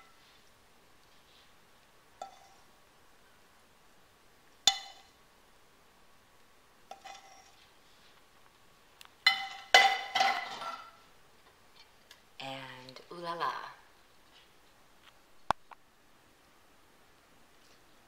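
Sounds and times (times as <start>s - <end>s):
plate scraping on countertop: 6.9s - 7.6s.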